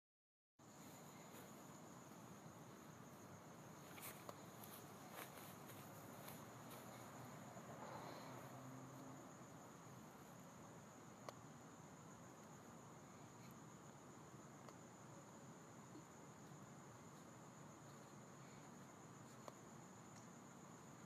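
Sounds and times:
faint steady hiss: 0.6 - 21.0
faint ticks: 11.2 - 11.4, 14.6 - 14.9, 15.9 - 20.4.

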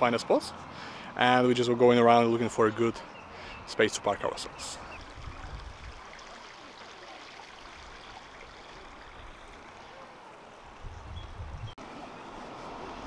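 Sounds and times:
creek water rushing: 3.2 - 10.9, 11.8 - 13.0.

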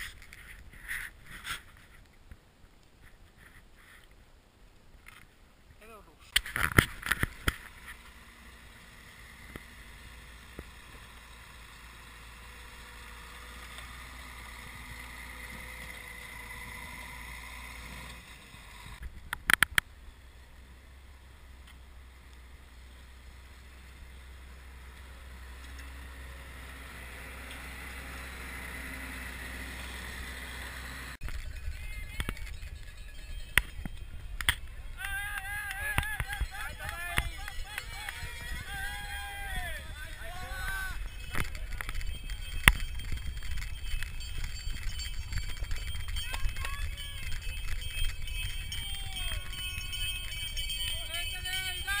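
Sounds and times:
snowcat engine pushing snow: 7.6 - 19.0, 20.0 - 31.3.

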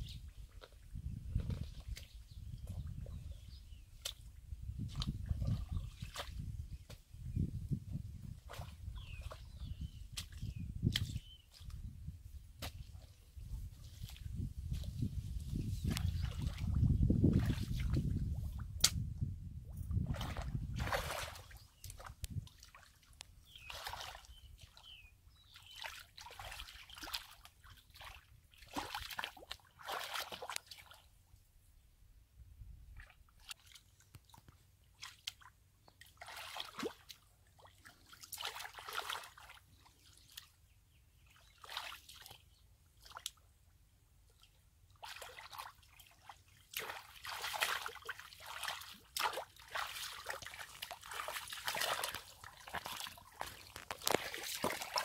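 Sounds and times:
hands splashing in muddy water: 0.5 - 3.2, 3.9 - 7.0, 8.3 - 11.9, 15.8 - 19.1, 19.9 - 31.1, 33.0 - 40.5, 41.5 - 42.4, 45.0 - 55.0.

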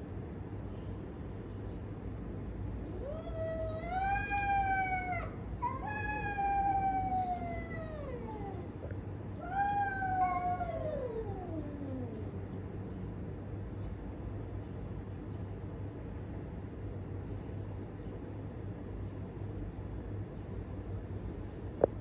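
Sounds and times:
cats yowling: 2.9 - 12.5.

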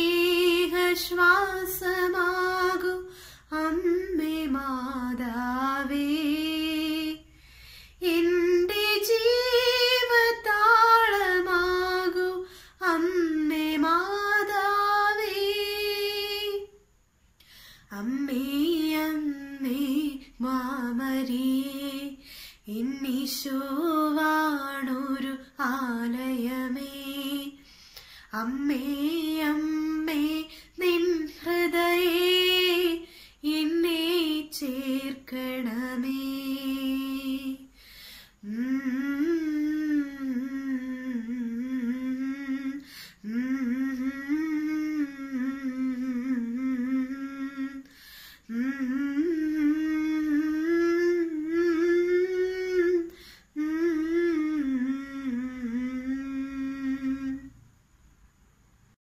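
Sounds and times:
woman humming: 48.5 - 57.5.

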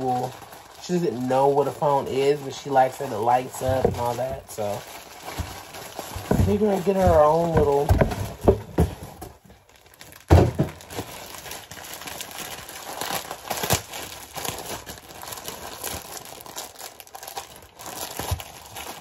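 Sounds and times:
packaging crinkling and rustling: 0.0 - 19.0
thump: 10.3 - 10.8.

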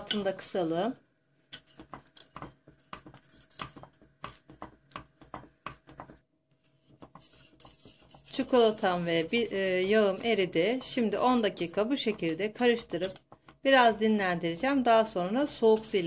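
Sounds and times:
whisk clinking against metal pot: 7.0 - 13.4.

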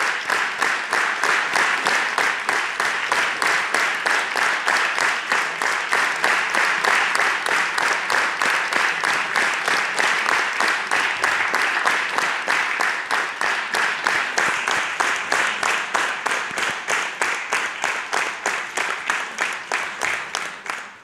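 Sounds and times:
audience applauding rhythmically: 0.0 - 21.0.

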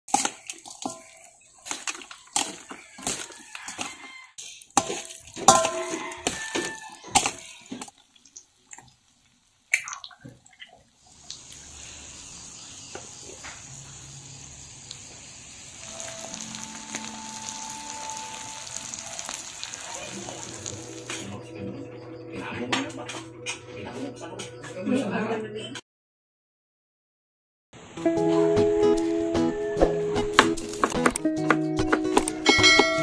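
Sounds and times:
metal spoon scraping steel bowl: 0.1 - 7.8
wet squelching: 0.1 - 9.0
meat sizzling in oil: 0.1 - 10.2, 11.0 - 21.3.

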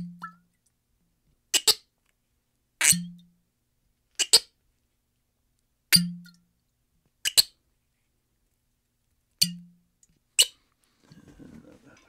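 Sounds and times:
cork popping from bottle: 2.8 - 3.1.

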